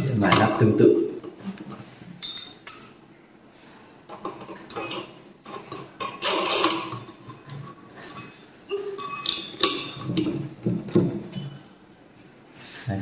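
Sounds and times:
metallic clicks and scraping: 4.1s - 11.6s.

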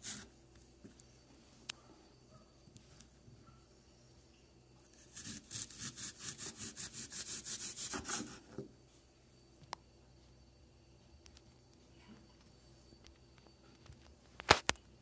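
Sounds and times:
handsaw sawing through apple: 5.0s - 8.4s.

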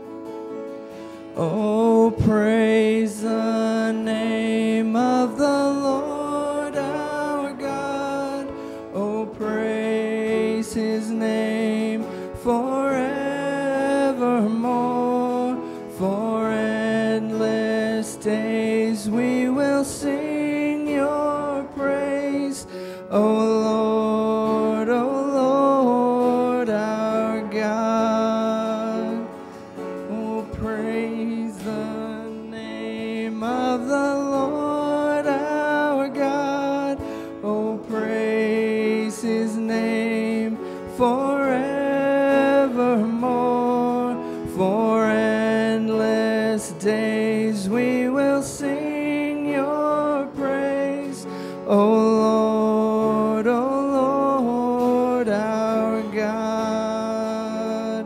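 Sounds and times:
church worship band playing: 0.0s - 58.0s.

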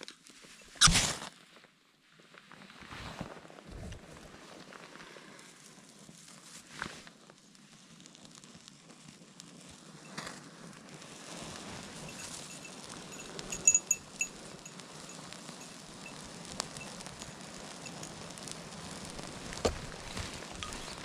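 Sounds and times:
small fire crackling: 0.0s - 21.0s.

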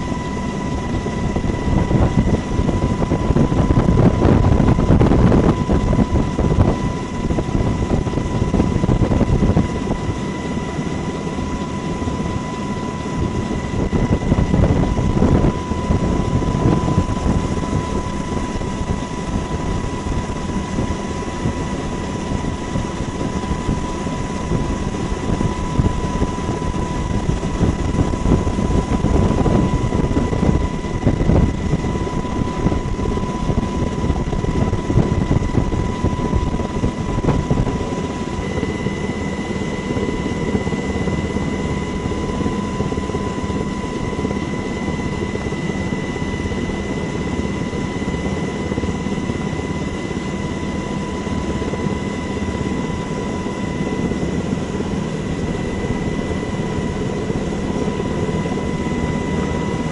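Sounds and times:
aircraft engine rumble: 0.0s - 59.9s
thin steady whine: 0.0s - 59.9s.

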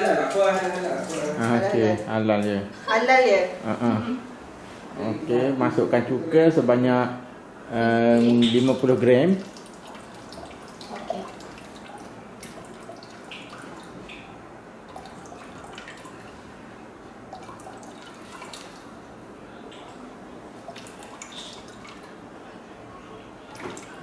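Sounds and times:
liquid dripping into metal bowl: 8.4s - 16.4s, 17.3s - 19.0s, 20.6s - 22.2s.

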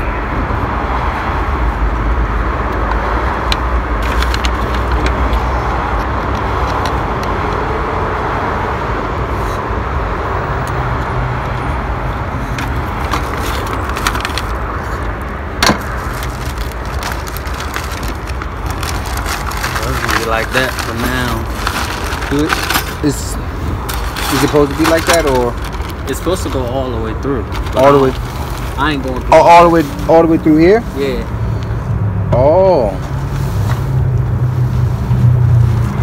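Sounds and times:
road traffic rumble: 0.0s - 36.0s.

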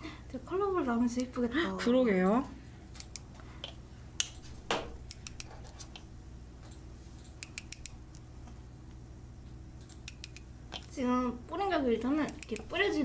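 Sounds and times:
faint steady low hum: 0.0s - 13.0s
small tools clicking and tapping: 6.6s - 8.0s, 9.8s - 10.9s, 12.3s - 12.7s.

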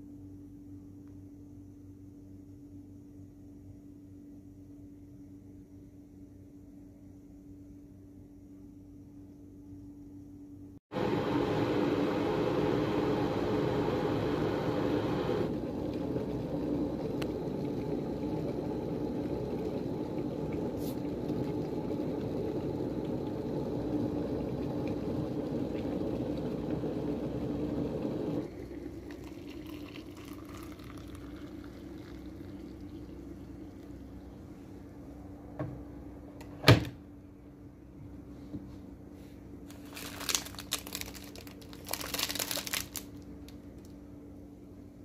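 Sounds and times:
kettle boiling water: 10.9s - 35.0s
hot water pouring into a mug: 11.0s - 34.4s.

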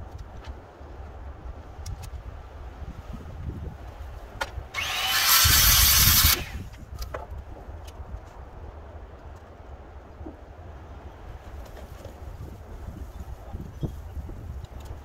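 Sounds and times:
power saw cutting wood: 4.7s - 6.6s.

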